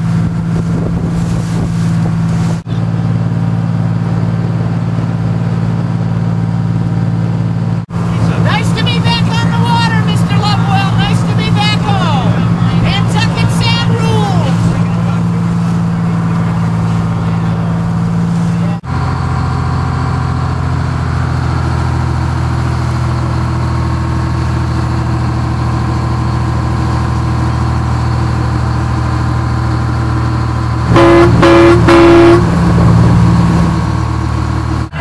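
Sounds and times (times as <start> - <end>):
boat engine running: 0.0 - 35.0
horn blasts: 30.9 - 33.0.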